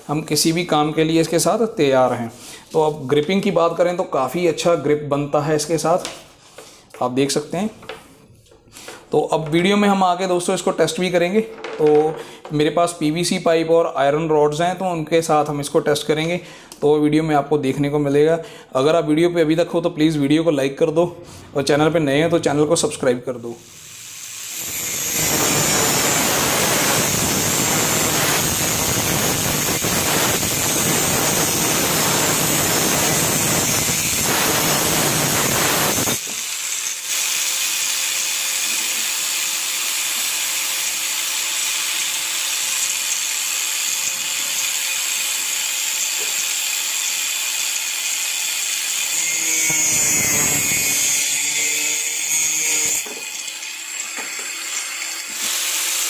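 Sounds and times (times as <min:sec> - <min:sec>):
angle grinder cutting metal rod: 0:23.7 - 0:56.0
grinder whine cutting plastic pipe: 0:23.9 - 0:56.0.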